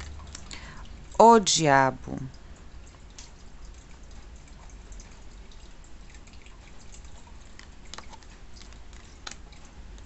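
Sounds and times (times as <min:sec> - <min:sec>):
low steady hum: 0:00.0 - 0:10.0
cards clicking and tapping: 0:07.6 - 0:10.0.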